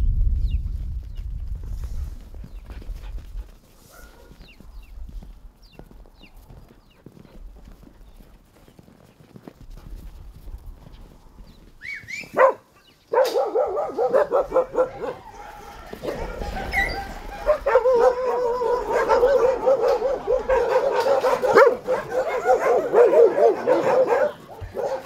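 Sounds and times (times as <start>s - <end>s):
many dogs barking and yelping: 3.8s - 4.9s, 11.8s - 25.0s
dog yelp falling in pitch: 13.2s - 25.0s.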